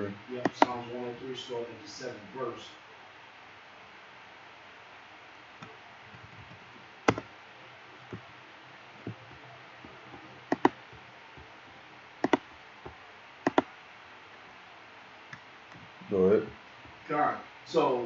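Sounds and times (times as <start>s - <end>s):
computer mouse clicking: 0.4s - 0.8s, 5.6s - 7.3s, 10.1s - 11.5s, 12.2s - 13.7s.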